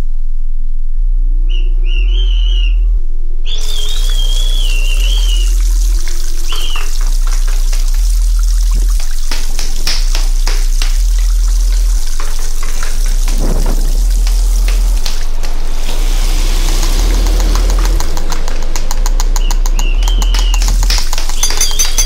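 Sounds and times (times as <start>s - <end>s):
low pulsing tone: 0.0s - 9.1s, 13.0s - 22.0s
water-like hiss: 3.6s - 8.4s, 9.0s - 18.2s
taps and clicks: 5.7s - 15.6s, 17.3s - 22.0s
fast run of clicks: 16.9s - 22.0s
wavering high tone: 21.4s - 22.0s.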